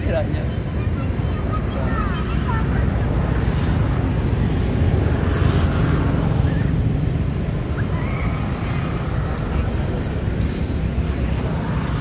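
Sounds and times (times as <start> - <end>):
steady low rumble: 0.5 - 12.0.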